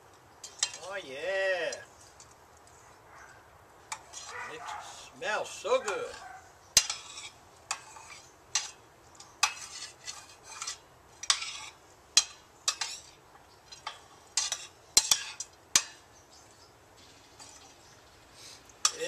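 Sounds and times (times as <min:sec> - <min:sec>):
metal spoon scraping frying pan: 0:00.4 - 0:00.9, 0:03.9 - 0:16.1.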